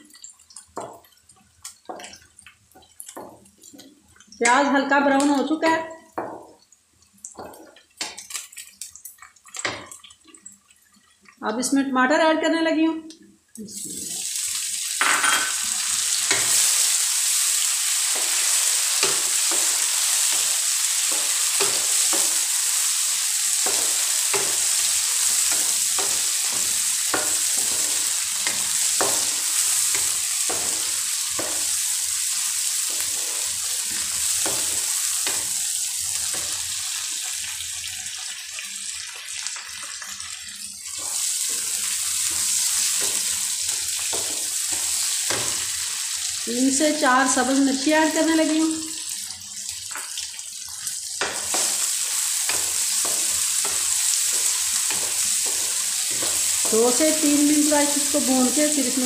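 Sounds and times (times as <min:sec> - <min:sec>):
vegetables sizzling in hot oil: 0:00.0 - 0:11.5, 0:13.6 - 0:59.0
wooden spatula knocking pan: 0:06.2 - 0:06.6, 0:23.6 - 0:31.8, 0:52.5 - 0:57.2.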